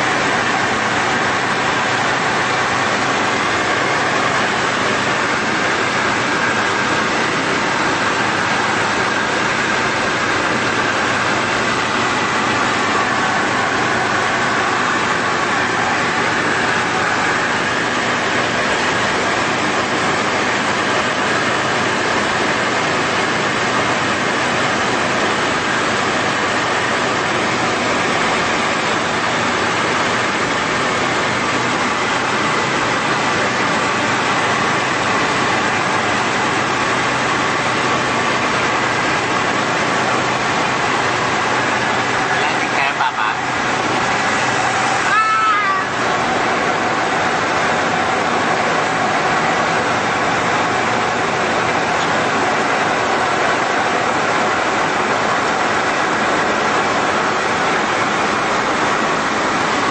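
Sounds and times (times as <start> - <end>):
aircraft engine and propeller drone: 0.0 - 59.9
rushing air: 0.0 - 59.9.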